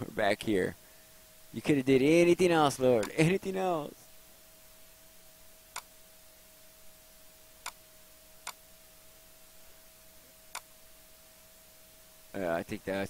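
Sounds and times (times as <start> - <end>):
faint steady whine: 0.0 - 13.0
computer mouse clicks: 3.0 - 3.2, 5.7 - 5.9.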